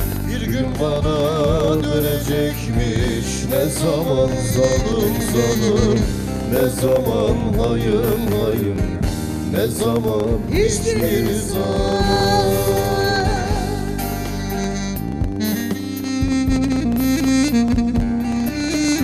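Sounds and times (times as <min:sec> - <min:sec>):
man singing folk song: 0:00.1 - 0:12.8.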